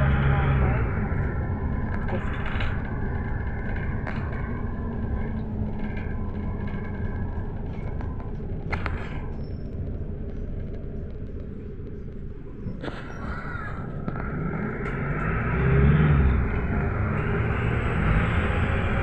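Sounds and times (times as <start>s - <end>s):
minibus engine and road rumble: 0.0s - 19.0s.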